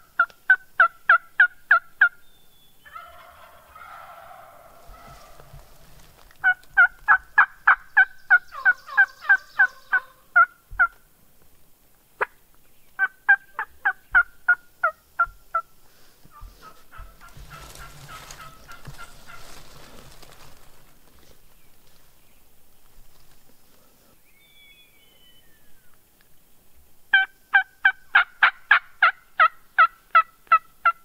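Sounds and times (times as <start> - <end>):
turkey yelping: 2.8 - 11.0, 13.0 - 15.6, 16.3 - 19.9, 27.1 - 31.0.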